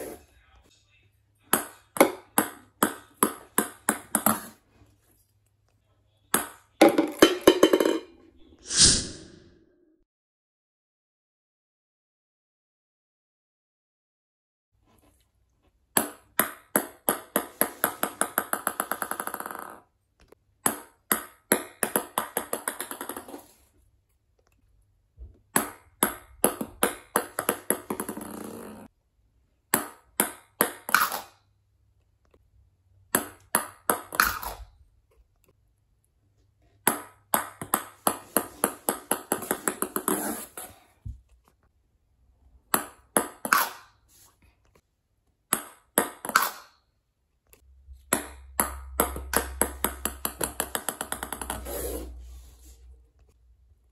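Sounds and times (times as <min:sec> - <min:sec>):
ping pong balls bouncing on wood: 0:01.5 - 0:04.6, 0:06.3 - 0:08.2, 0:15.9 - 0:19.9, 0:20.6 - 0:23.4, 0:25.2 - 0:28.9, 0:29.7 - 0:31.4, 0:33.0 - 0:34.6, 0:36.8 - 0:40.4, 0:42.7 - 0:44.0, 0:45.5 - 0:46.8, 0:48.0 - 0:51.7.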